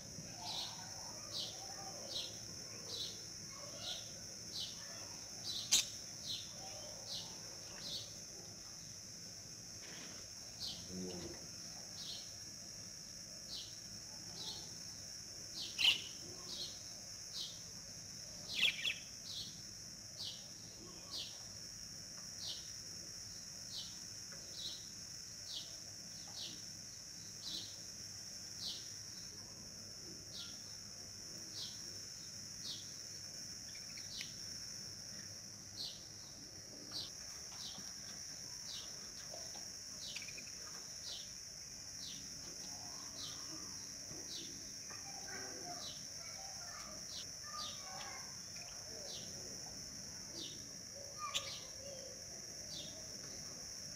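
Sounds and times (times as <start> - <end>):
steady high-pitched hiss: 0.0 - 53.9
bird chirping: 0.3 - 8.2, 15.6 - 17.6, 18.5 - 19.6, 33.6 - 34.4, 38.7 - 41.3, 51.2 - 52.1.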